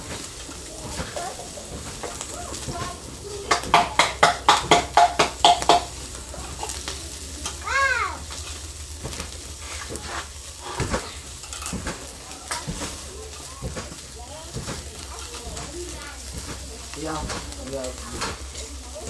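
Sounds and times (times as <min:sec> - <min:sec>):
meat sizzling: 0:00.0 - 0:19.0
metal tongs clicking on grill grate: 0:03.5 - 0:07.6, 0:10.0 - 0:13.5.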